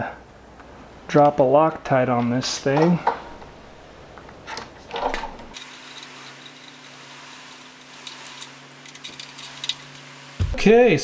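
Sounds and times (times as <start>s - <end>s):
steady low hum: 10.4s - 11.0s.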